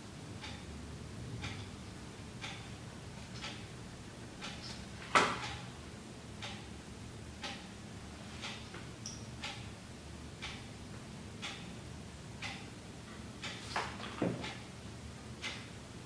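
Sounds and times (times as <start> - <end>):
clock ticking: 0.4 - 0.7, 1.4 - 1.8, 2.4 - 2.8, 3.4 - 3.8, 4.4 - 4.7, 6.4 - 6.8, 7.4 - 7.8, 8.4 - 9.8, 10.4 - 10.8, 11.4 - 11.7, 12.4 - 12.7, 15.4 - 15.7.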